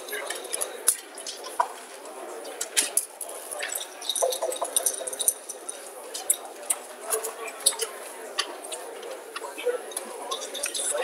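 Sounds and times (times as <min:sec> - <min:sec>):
murmur of voices: 0:00.0 - 0:11.0
game pieces and dice clicking: 0:02.7 - 0:06.4.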